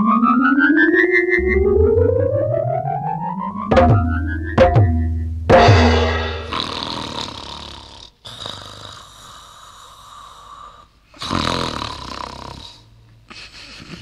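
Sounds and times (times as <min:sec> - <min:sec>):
person snoring: 0:06.5 - 0:13.0.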